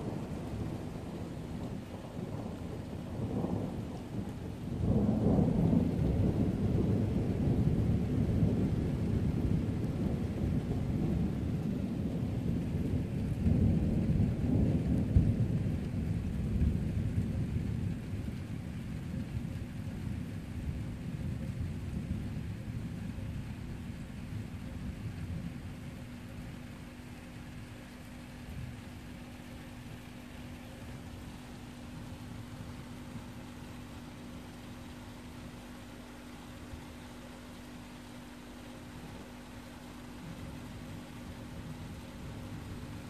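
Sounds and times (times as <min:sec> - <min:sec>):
thunder rolling: 0:00.0 - 0:18.4
rain falling: 0:00.0 - 0:43.0.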